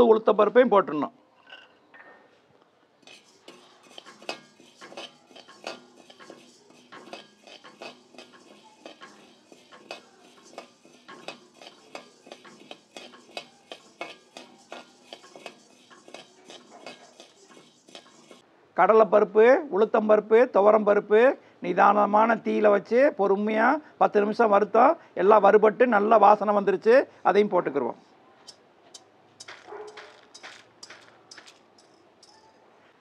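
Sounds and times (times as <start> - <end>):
metal spatula scraping a pan: 3.0 - 18.4, 28.5 - 32.6.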